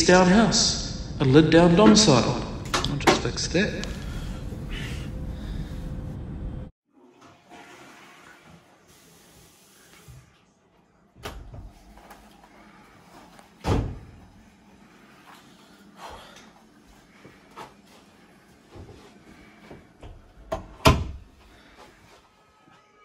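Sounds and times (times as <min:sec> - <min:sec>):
loud door thump: 0:13.6 - 0:14.1.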